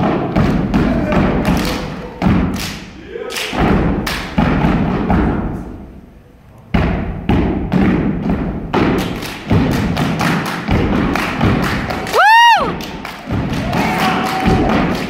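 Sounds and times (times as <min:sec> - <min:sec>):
foot stomps on wooden stage: 0:00.0 - 0:02.6, 0:03.6 - 0:05.8, 0:06.8 - 0:15.0
hand claps: 0:00.0 - 0:04.4, 0:08.8 - 0:15.0.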